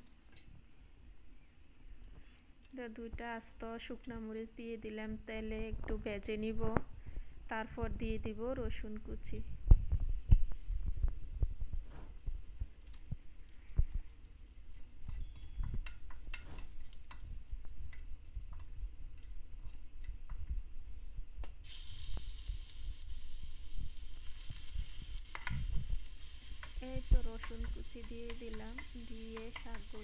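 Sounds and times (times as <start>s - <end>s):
garlic sizzling in oil: 11.9s - 20.8s, 21.4s - 30.0s
chillies frying in oil: 12.2s - 30.0s
wooden spatula scraping wok: 24.3s - 30.0s.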